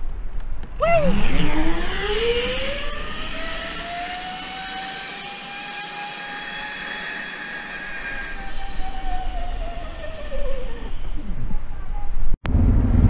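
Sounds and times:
zipline pulleys whirring on cable: 0:00.9 - 0:11.3.

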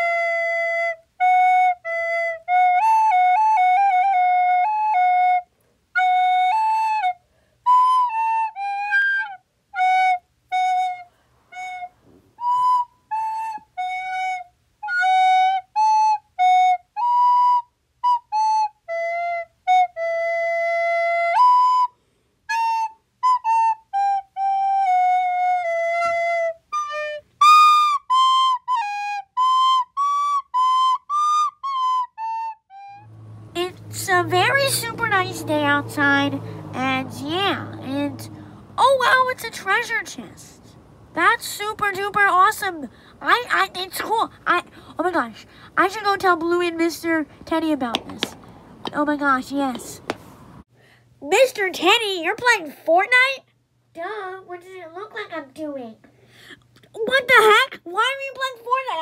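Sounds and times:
solo flute-like melody: 0:00.0 - 0:38.1.

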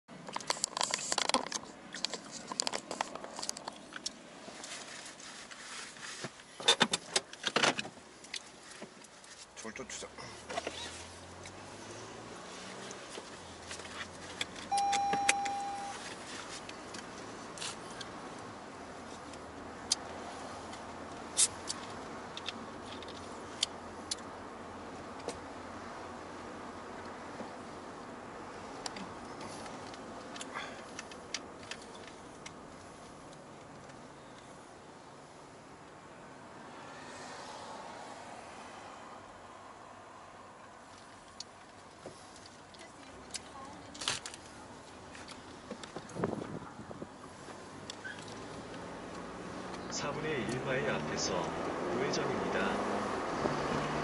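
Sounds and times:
car tyre and cabin noise: 0:00.1 - 0:54.0
sharp clicks in car: 0:14.3 - 0:16.0, 0:19.2 - 0:24.3.

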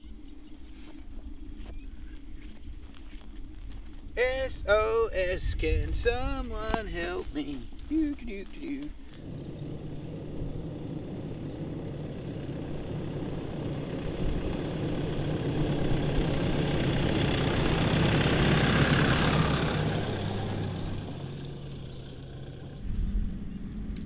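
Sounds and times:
vehicle driving past on dirt: 0:08.4 - 0:24.0.

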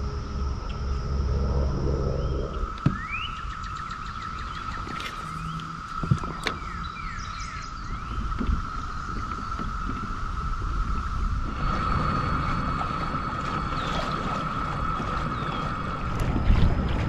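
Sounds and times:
high-pitched insect drone: 0:00.0 - 0:17.0
rising bird chirps: 0:01.2 - 0:09.5.

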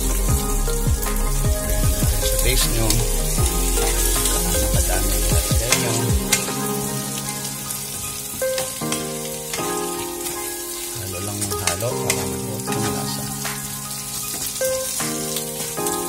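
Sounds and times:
background music with held notes: 0:00.0 - 0:16.0
chicken sizzling in a pan: 0:02.4 - 0:16.0.

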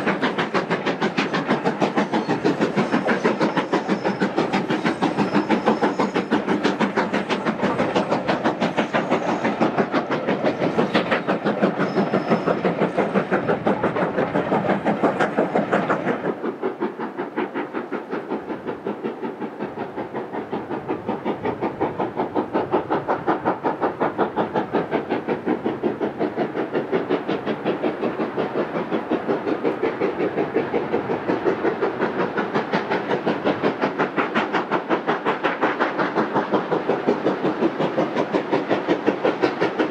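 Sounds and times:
coaches rumbling on rails: 0:00.0 - 0:17.1
steam locomotive chuffing: 0:00.0 - 0:39.9.

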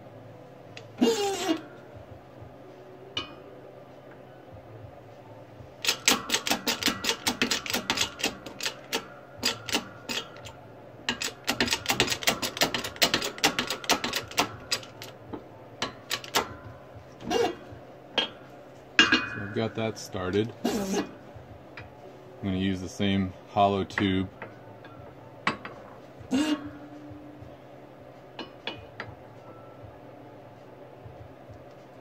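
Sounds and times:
hydraulic press pump clicking: 0:00.8 - 0:01.6, 0:05.8 - 0:10.5, 0:11.1 - 0:15.1, 0:15.8 - 0:16.6.

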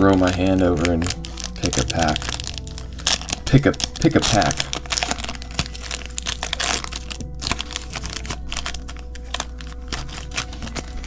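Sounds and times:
foil wrapper crinkling: 0:00.0 - 0:11.0.

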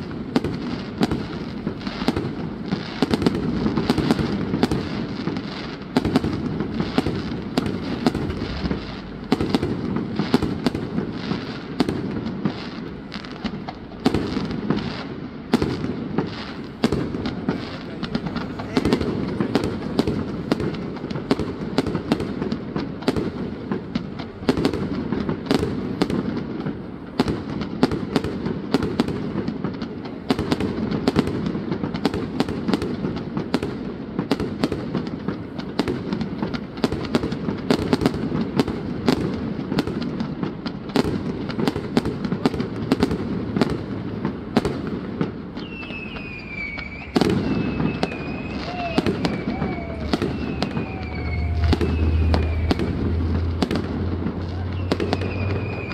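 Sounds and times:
falling firework whistle: 0:00.0 - 0:23.8, 0:45.4 - 0:55.9
fireworks bangs and crackles: 0:00.0 - 0:55.9
rumble of firework bursts: 0:00.0 - 0:55.9.

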